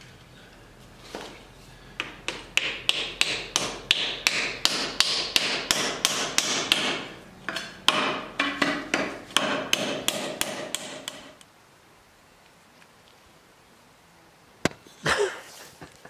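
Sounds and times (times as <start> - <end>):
hammer knocking wooden wedge: 2.0 - 11.4.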